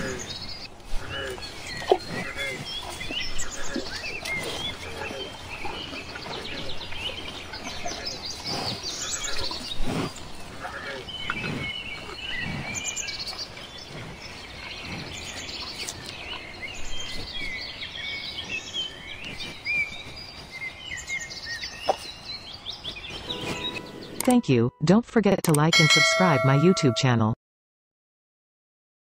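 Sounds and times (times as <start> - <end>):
birds chirping in chorus: 0.0 - 24.4.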